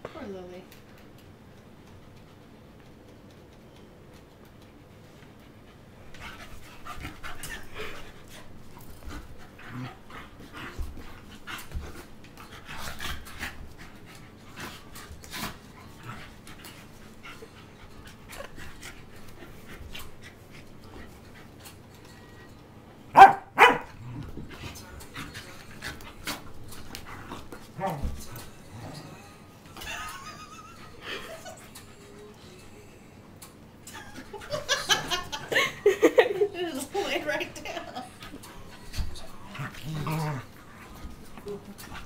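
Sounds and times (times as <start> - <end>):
dog panting: 4.6 - 21.8, 24.4 - 28.5
dog barking loudly: 23.2 - 23.9.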